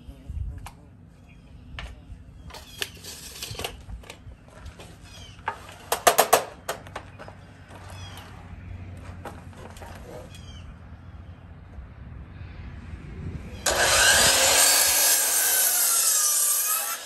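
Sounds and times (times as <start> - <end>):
birds chirping: 0.0 - 11.7
sharp clicks and knocks: 5.5 - 7.8.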